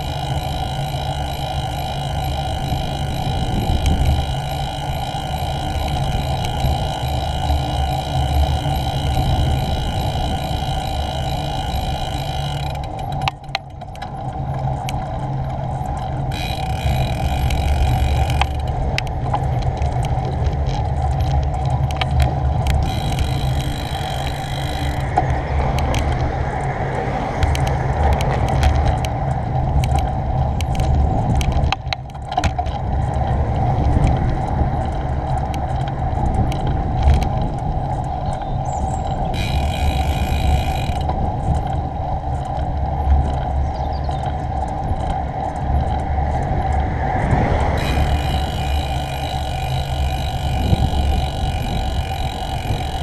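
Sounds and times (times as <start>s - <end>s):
bike clicking and rattling: 0.0s - 53.0s
wind buffeting microphone: 0.0s - 53.0s
car passing: 24.6s - 29.5s.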